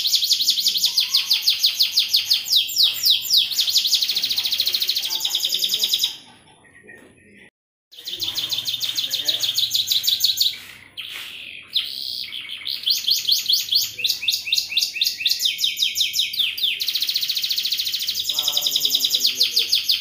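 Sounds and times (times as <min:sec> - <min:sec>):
canary singing trills: 0:00.0 - 0:20.0.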